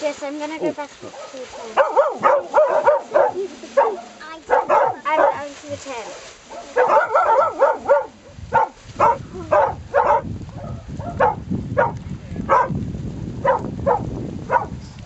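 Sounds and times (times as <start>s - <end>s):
dog barking: 1.0s - 5.5s, 6.5s - 12.7s, 13.4s - 14.8s.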